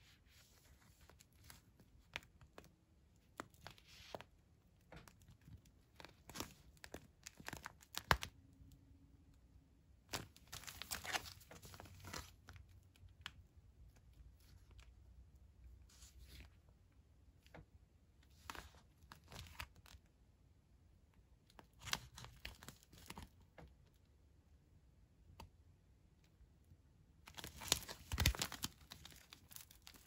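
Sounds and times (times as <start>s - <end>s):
foil pouch crinkling: 27.3s - 30.0s.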